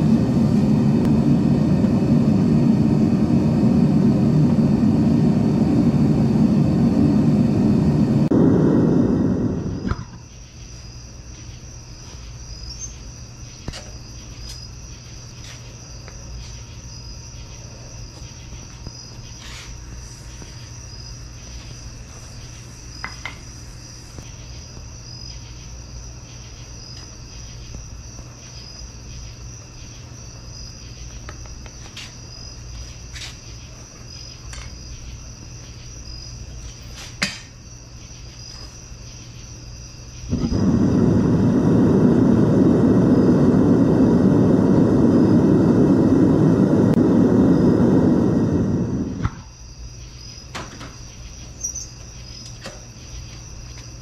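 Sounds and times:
low hum: 0.0 - 10.3, 40.3 - 49.4
crickets chirping: 0.0 - 54.0.

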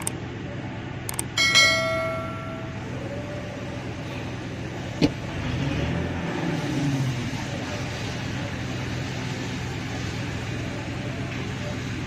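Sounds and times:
truck engine idling: 0.0 - 12.0
click and bell-like ding: 1.1 - 2.8.

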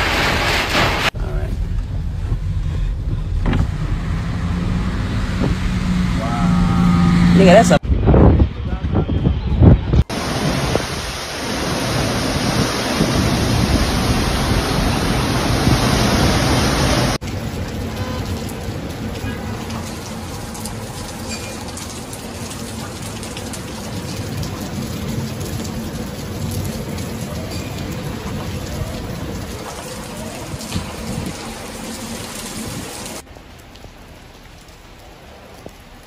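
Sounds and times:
heavy rain: 0.0 - 7.8, 10.0 - 36.0
wind: 0.0 - 36.0
loud low rumbling: 1.0 - 18.7.

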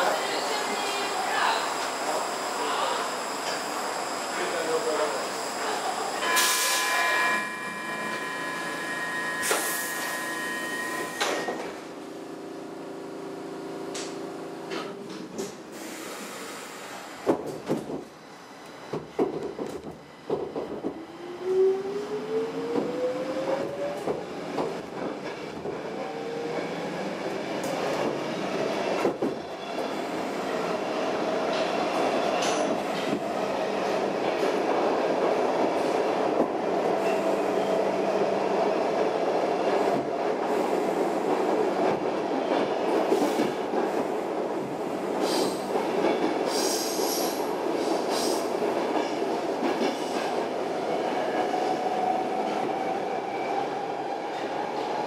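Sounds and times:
subway doors knocking shut: 17.2 - 18.1, 18.9 - 21.0.

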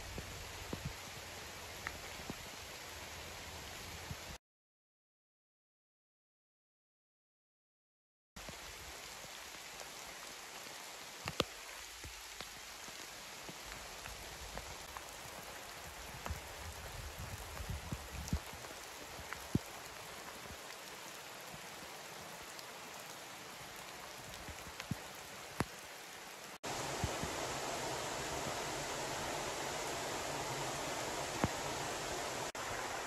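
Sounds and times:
light rain on foliage: 0.0 - 4.4, 8.4 - 33.0
drops ticking on leaves: 8.4 - 32.7.

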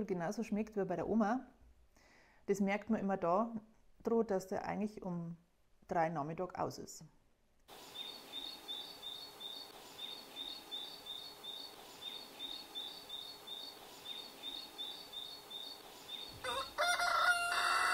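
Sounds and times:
faint hiss: 7.7 - 16.4.

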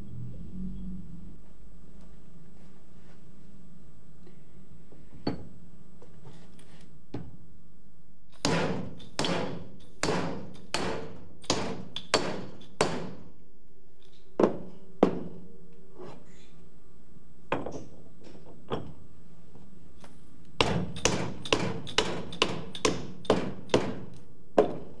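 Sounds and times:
steady hum: 0.0 - 8.4.

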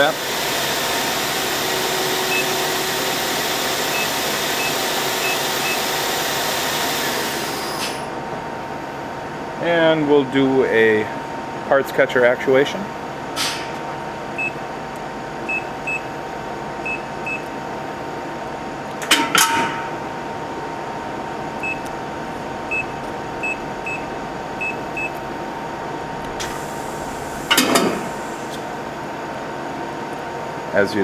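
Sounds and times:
machine hum: 0.0 - 31.0
hiss: 26.4 - 28.6.

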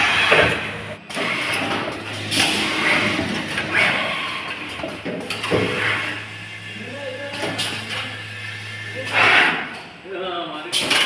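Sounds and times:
machine low hum: 0.0 - 10.5
machine clicks and clunks: 4.5 - 5.8, 10.7 - 11.0.

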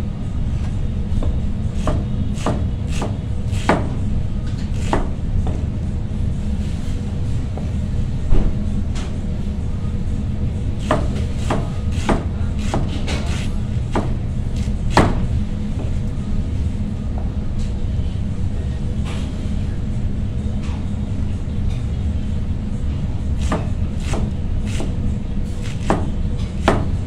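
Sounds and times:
steady low hum: 0.0 - 27.0
knife chopping cabbage on board: 1.8 - 4.0, 4.7 - 5.2, 10.8 - 15.3, 23.4 - 25.0, 25.6 - 27.0.

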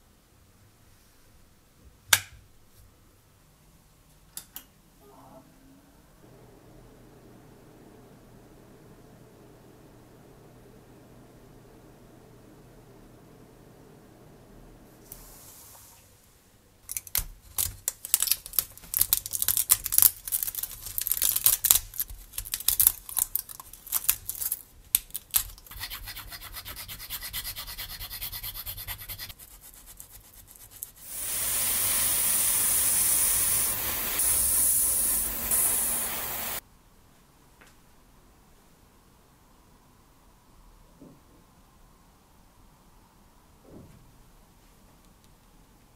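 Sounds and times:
loud steady hiss: 6.2 - 16.5, 31.0 - 36.6
hand sanding rubbing strokes: 25.8 - 36.6.

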